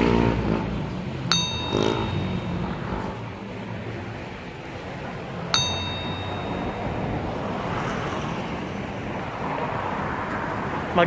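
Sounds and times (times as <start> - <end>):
street traffic noise: 0.0 - 11.0
notification bell ding: 1.3 - 3.2, 5.6 - 7.6.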